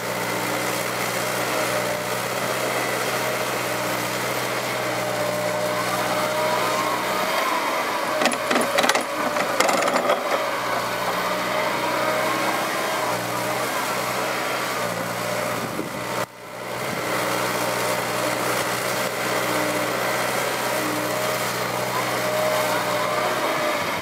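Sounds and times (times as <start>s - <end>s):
excavator diesel engine running: 0.0s - 24.0s
hydraulic whine: 4.8s - 16.0s
bucket clanks and knocks: 8.2s - 10.9s.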